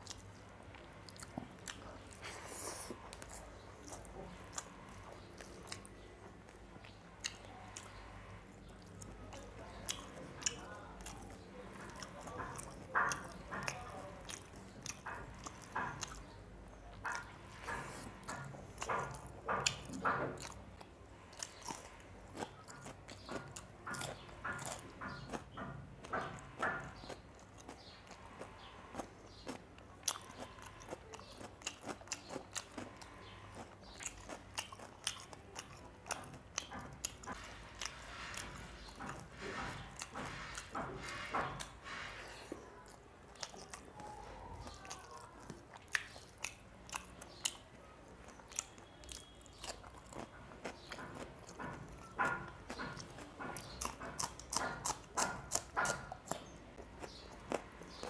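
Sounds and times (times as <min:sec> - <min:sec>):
crunchy chewing clicks: 0:00.0 - 0:58.0
person chewing with wet smacking: 0:00.0 - 0:58.0.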